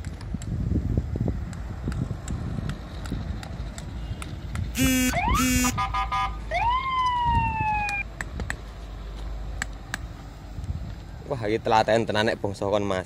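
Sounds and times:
electronic vehicle siren: 0:04.8 - 0:08.0.

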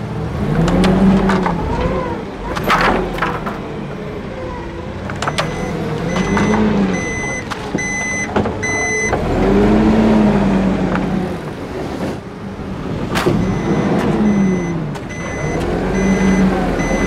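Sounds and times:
forklift engine revving: 0:00.0 - 0:17.0
backup alarm beeping: 0:05.2 - 0:09.2, 0:13.3 - 0:17.0.

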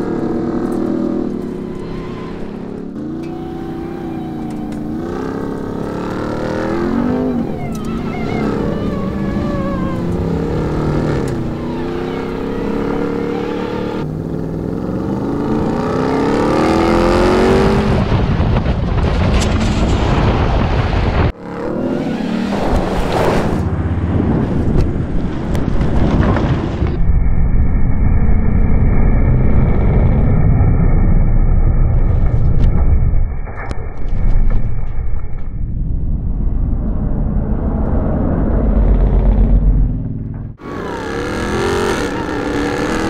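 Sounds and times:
truck engine revving: 0:00.0 - 0:19.2, 0:37.0 - 0:43.0.

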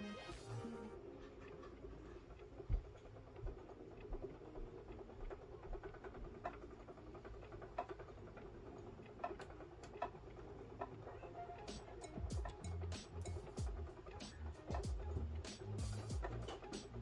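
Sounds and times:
spinning wheel whirring: 0:00.0 - 0:17.0
spinning wheel ticks and knocks: 0:01.2 - 0:17.0.

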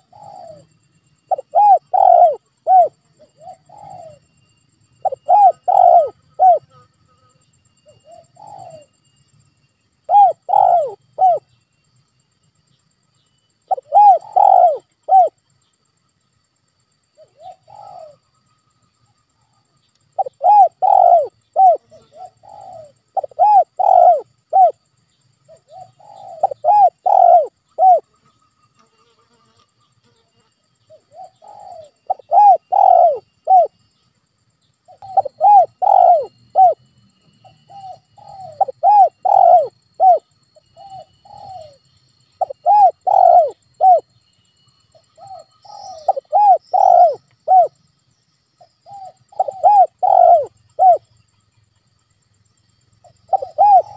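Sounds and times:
dove cooing: 0:00.0 - 0:04.2, 0:05.0 - 0:06.8, 0:07.9 - 0:08.9, 0:10.1 - 0:11.5, 0:13.7 - 0:15.4, 0:17.2 - 0:18.2, 0:20.2 - 0:24.8, 0:25.5 - 0:28.1, 0:30.9 - 0:33.8, 0:34.9 - 0:36.8, 0:37.4 - 0:41.8, 0:42.4 - 0:44.1, 0:44.9 - 0:47.8, 0:48.8 - 0:51.1, 0:53.0 - 0:53.9.

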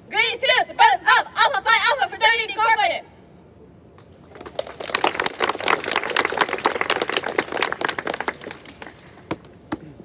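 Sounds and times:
crowd applauding: 0:04.4 - 0:09.0.

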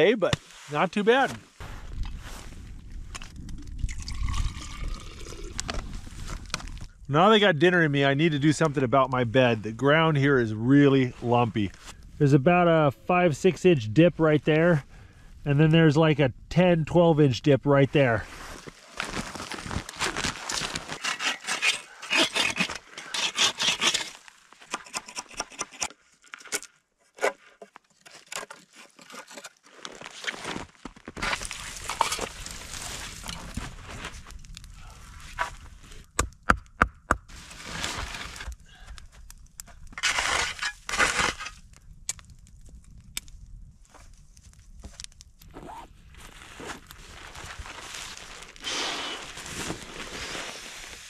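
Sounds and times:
snow crunching and scraping by hand: 0:00.0 - 0:02.9, 0:05.6 - 0:12.6, 0:17.7 - 0:24.6, 0:28.7 - 0:36.1, 0:37.3 - 0:38.6, 0:40.0 - 0:41.6, 0:44.8 - 0:51.0.

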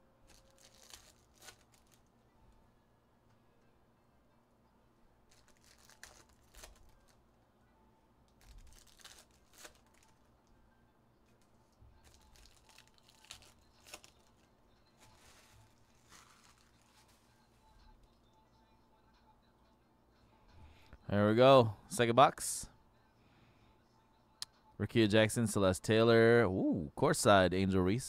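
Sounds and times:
foil wrappers tearing and crinkling: 0:00.3 - 0:02.1, 0:05.3 - 0:07.2, 0:08.4 - 0:10.3, 0:12.0 - 0:17.3.

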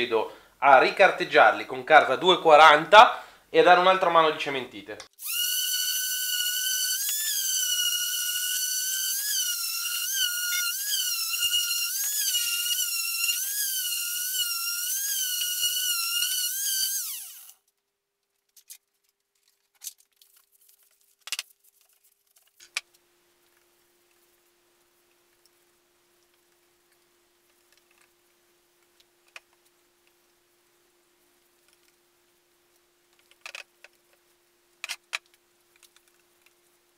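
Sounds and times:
orbital sander whining: 0:05.2 - 0:17.6.

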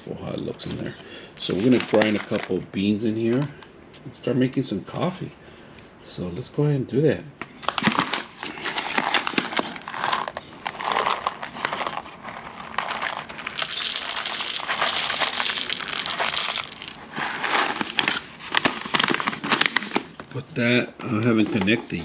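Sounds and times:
paper bag crinkling: 0:07.6 - 0:20.2
coffee beans rattling in metal bowl: 0:12.8 - 0:17.1.

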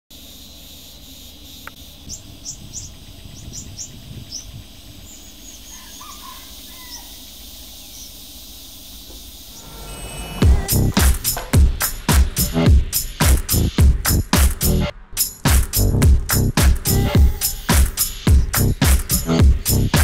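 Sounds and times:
faint insect drone: 0:00.1 - 0:13.7, 0:16.8 - 0:20.0
birds chirping: 0:00.2 - 0:14.4, 0:15.8 - 0:20.0
lower gliding bird calls: 0:01.7 - 0:10.7.

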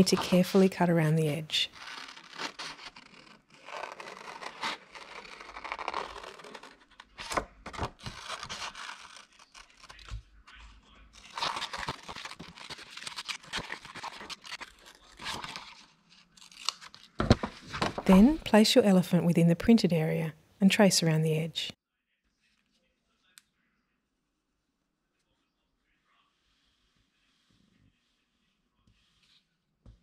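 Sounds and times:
paper rustling: 0:00.0 - 0:18.5
scissors snipping paper: 0:01.7 - 0:17.2.

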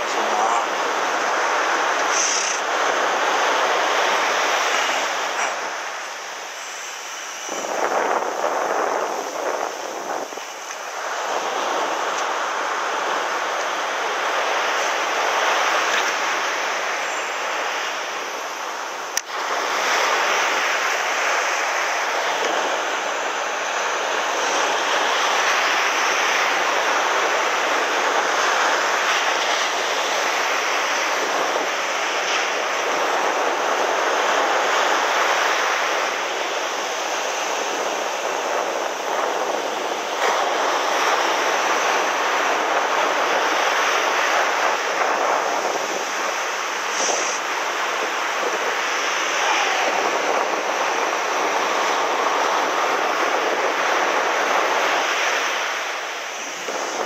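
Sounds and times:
ocean surf breaking on beach: 0:00.0 - 0:57.0.

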